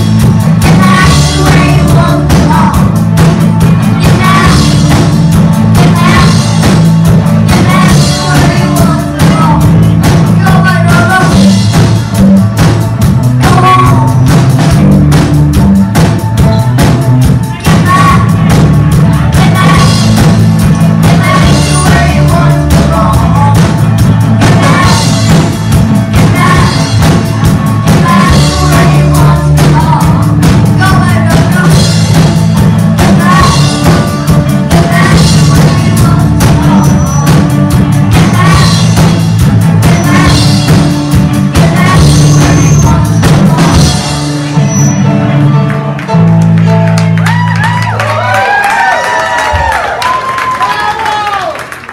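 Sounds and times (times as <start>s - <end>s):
lead singer singing: 0.0s - 11.8s, 17.5s - 44.9s
drum kit beat: 0.0s - 51.9s
live rock band playing: 0.0s - 51.9s.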